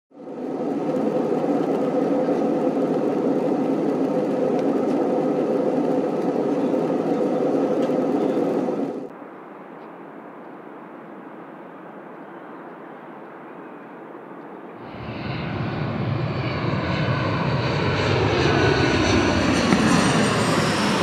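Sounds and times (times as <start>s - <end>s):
airliner cabin drone: 0.1s - 21.0s.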